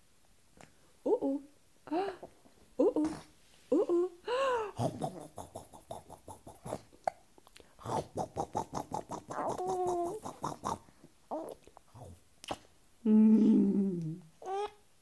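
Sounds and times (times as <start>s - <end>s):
baby cooing: 7.9s - 12.6s, 13.3s - 14.8s.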